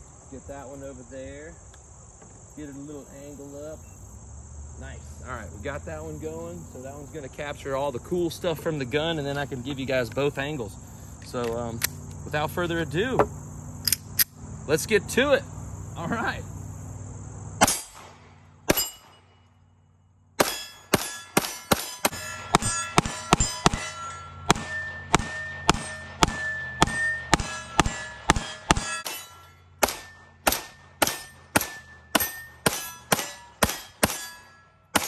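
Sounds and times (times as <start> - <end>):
pistol shots: 17.6 - 19.2, 20.4 - 29.2, 29.8 - 35.0
steel targets clanging: 18.7 - 19.4, 20.4 - 35.0.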